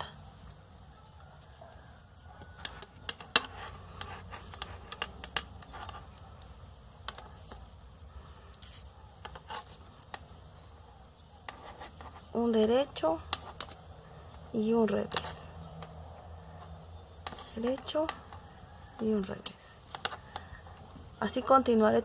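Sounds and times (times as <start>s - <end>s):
yarn rubbing: 0.0s - 22.0s
knitting needles clicking: 2.4s - 7.8s, 12.5s - 16.3s, 17.0s - 21.3s.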